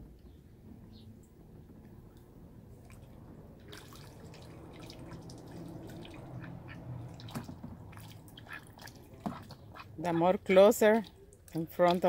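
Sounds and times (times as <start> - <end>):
ducks splashing in water: 2.8 - 12.0.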